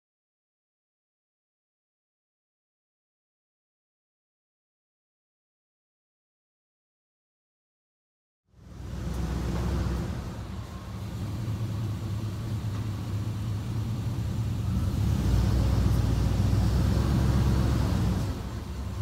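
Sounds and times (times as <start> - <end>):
pickup truck engine running: 8.6 - 19.0.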